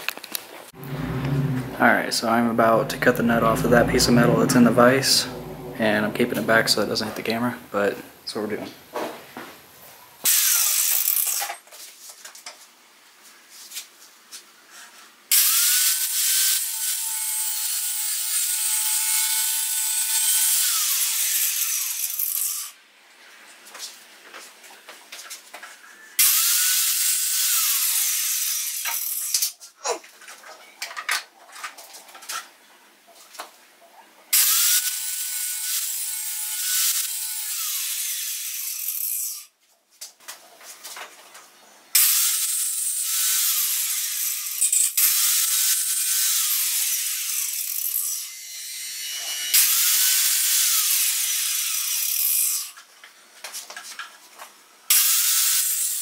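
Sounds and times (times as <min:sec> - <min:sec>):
angle grinder cutting metal: 0:00.8 - 0:07.2, 0:15.3 - 0:22.7, 0:26.2 - 0:29.4, 0:34.4 - 0:39.4, 0:42.0 - 0:52.7, 0:54.9 - 0:56.0.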